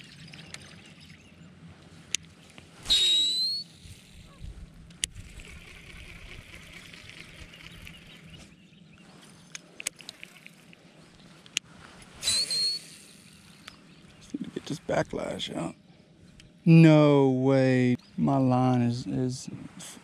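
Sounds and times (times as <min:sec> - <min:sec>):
reel spool whine: 0:00.0 - 0:14.4
reel sharp clicks: 0:02.1 - 0:08.3, 0:09.2 - 0:13.8
reel cranking buzz: 0:02.8 - 0:04.3, 0:04.9 - 0:08.4, 0:09.2 - 0:10.9, 0:12.2 - 0:13.8.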